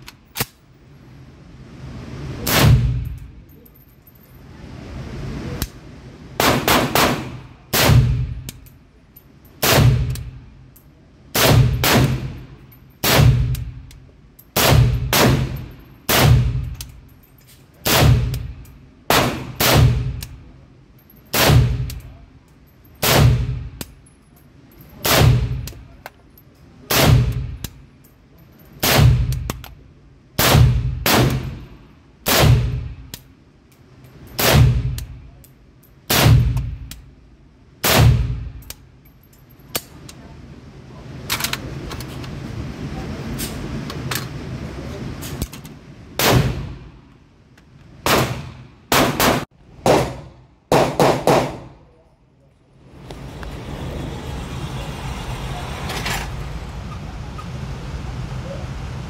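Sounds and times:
pistol shots echoing indoors: 6.4 - 8.3, 48.1 - 51.7.

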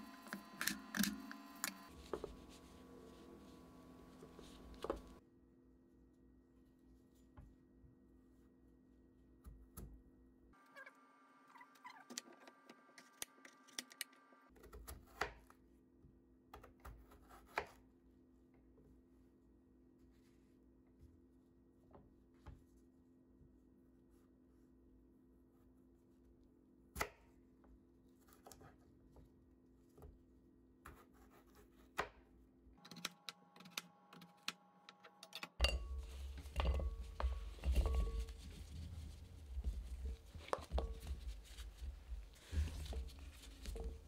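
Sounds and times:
paper towel rustling: 1.9 - 5.2, 36.0 - 44.0.

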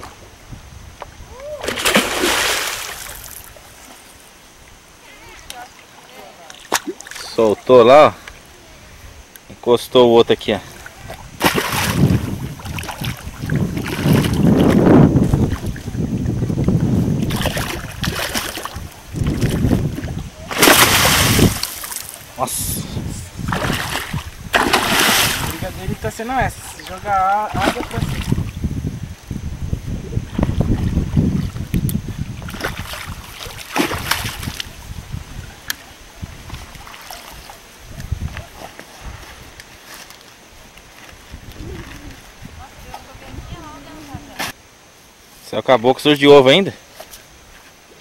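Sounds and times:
wind buffeting microphone: 0.0 - 3.3, 8.1 - 39.6, 41.2 - 44.8
fish splashing in water: 1.6 - 3.6, 10.9 - 14.8, 17.2 - 22.2, 23.4 - 28.4, 32.4 - 34.8.

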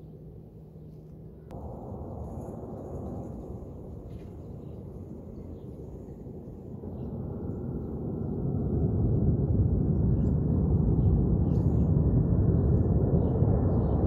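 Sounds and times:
distant jet engines rumbling: 0.0 - 14.0.

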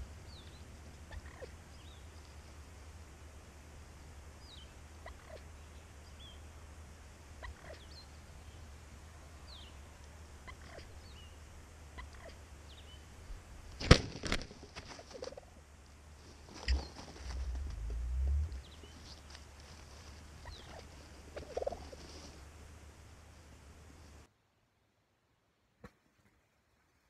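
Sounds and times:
small birds chirping: 0.0 - 3.0, 4.4 - 6.6, 7.3 - 8.7, 9.3 - 13.4, 16.3 - 22.2
turkey gobbling: 1.1 - 1.6, 5.0 - 5.5, 7.4 - 7.9, 10.4 - 10.9, 16.6 - 17.9, 20.4 - 22.0.

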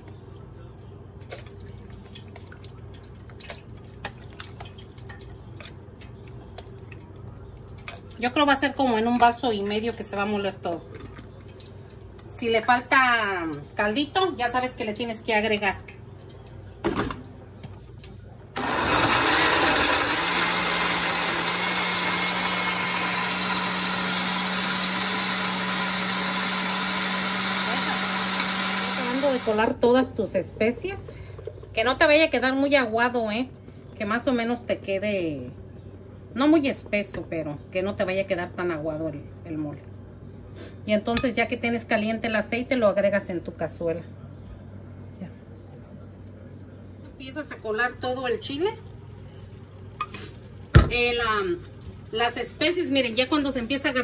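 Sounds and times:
liquid dripping and splashing: 0.0 - 8.4, 9.1 - 12.3, 15.8 - 18.2
blender motor humming: 18.6 - 29.7.

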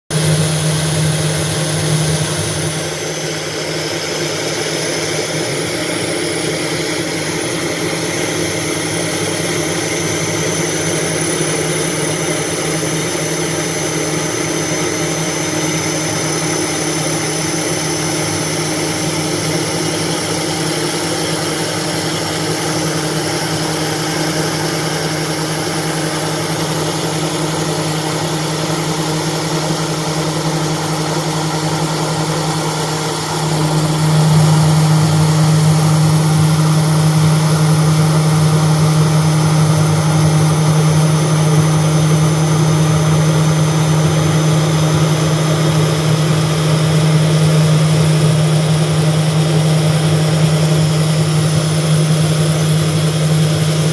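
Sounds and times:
router spindle milling: 0.1 - 3.1, 19.0 - 53.9.

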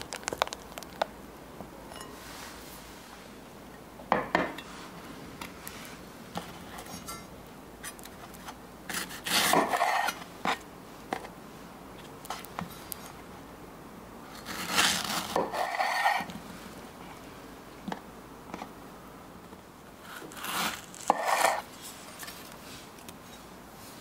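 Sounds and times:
knife slicing strawberries: 20.1 - 22.2.

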